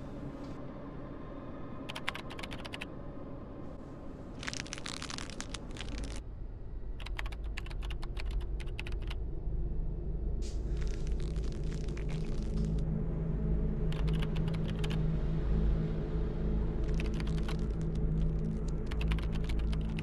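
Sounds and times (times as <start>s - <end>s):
typing on computer keyboard: 1.9s - 2.8s, 7.0s - 9.2s, 13.9s - 15.0s, 16.9s - 17.8s, 18.7s - 20.0s
low rumbling drone: 9.2s - 20.0s.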